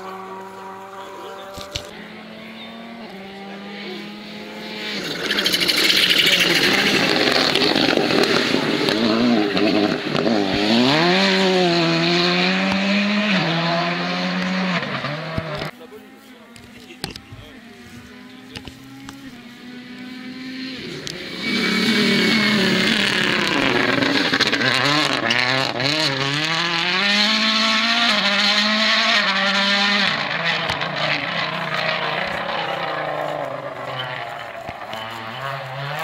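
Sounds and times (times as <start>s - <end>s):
rally car engine at full throttle: 0.0s - 36.0s
exhaust pops: 5.2s - 11.8s, 27.7s - 36.0s.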